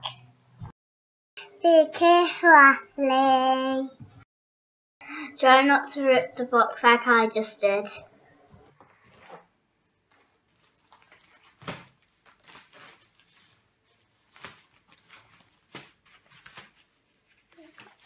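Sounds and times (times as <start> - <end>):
plastic rustling and crinkling: 8.8 - 18.0
sharp plastic crackles: 10.0 - 13.6, 14.2 - 18.0.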